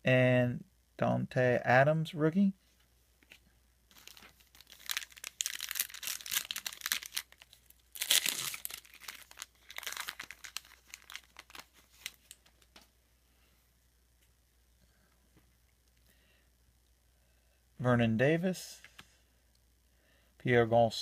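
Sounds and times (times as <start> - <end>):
cards rustling and clicking: 3.2 - 12.9
wrapper tearing and crinkling: 3.9 - 12.8.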